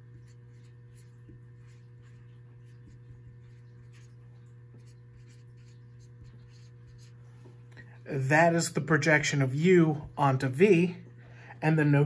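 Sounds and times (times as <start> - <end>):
marker scratching on whiteboard: 0.0 - 7.6
steady low hum: 0.0 - 12.0.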